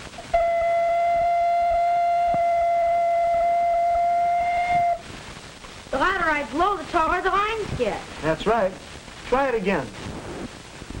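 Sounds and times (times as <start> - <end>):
ocarina long note: 0.2 - 5.1.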